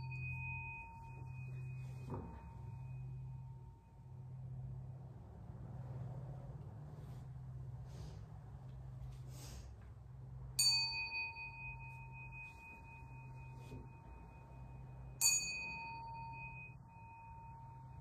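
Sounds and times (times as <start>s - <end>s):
bowl bell ringing: 0.0s - 4.8s, 10.5s - 18.0s.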